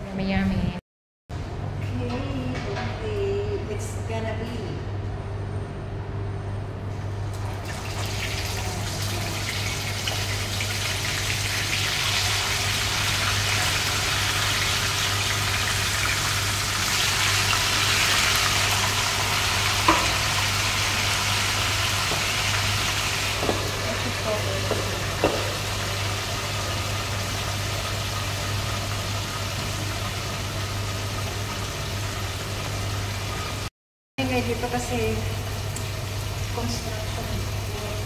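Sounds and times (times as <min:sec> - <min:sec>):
fish frying in hot oil: 0:07.4 - 0:33.7.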